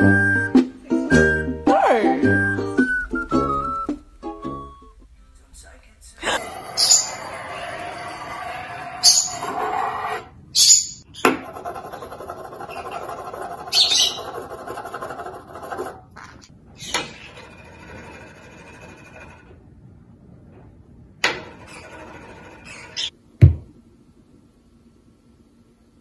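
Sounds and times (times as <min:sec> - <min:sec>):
heavy thump: 0:23.4 - 0:23.7.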